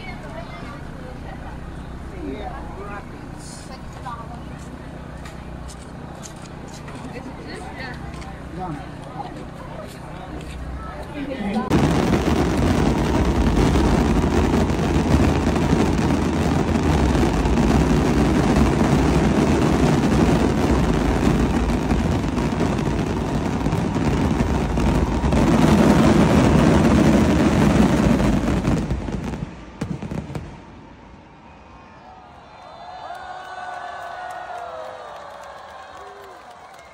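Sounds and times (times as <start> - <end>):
fireworks bursting in a rumble: 11.6 - 31.2.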